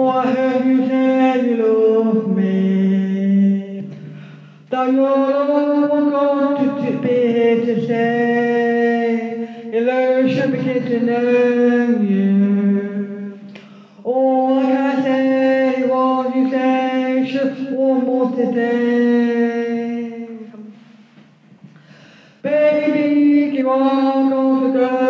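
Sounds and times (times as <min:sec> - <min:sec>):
woman singing unaccompanied: 0:00.0 - 0:04.0, 0:04.7 - 0:20.8, 0:22.4 - 0:25.0.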